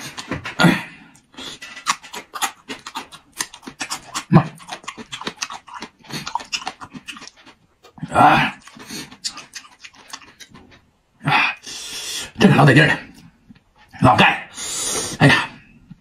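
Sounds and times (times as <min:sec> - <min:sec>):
man chewing: 0:00.0 - 0:11.0, 0:13.1 - 0:16.0
wet mouth clicks: 0:01.2 - 0:07.6, 0:08.6 - 0:10.6
man panting and hissing: 0:11.2 - 0:12.4, 0:14.5 - 0:15.5.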